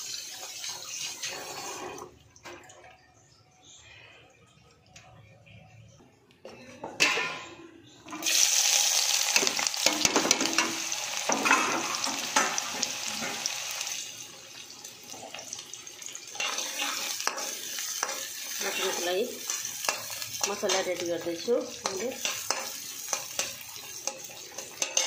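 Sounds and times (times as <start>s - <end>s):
onions sizzling in hot oil: 0.0s - 1.6s, 8.2s - 25.0s
spatula scraping a metal pan: 16.4s - 21.0s, 21.8s - 25.0s.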